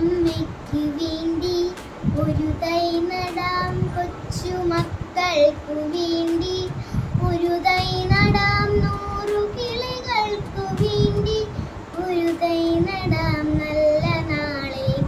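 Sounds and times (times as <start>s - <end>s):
girl singing: 0.0s - 15.0s.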